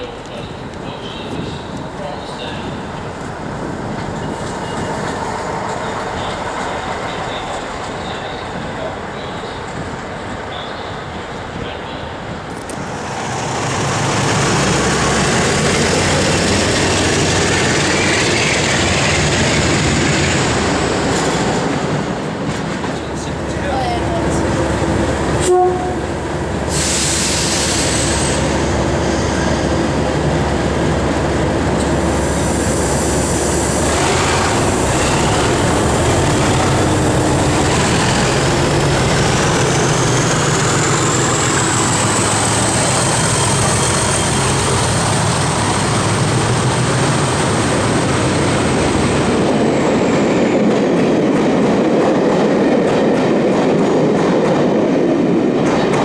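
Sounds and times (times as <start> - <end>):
diesel locomotive engine: 0.0 - 56.0
train horn blast: 25.4 - 26.1.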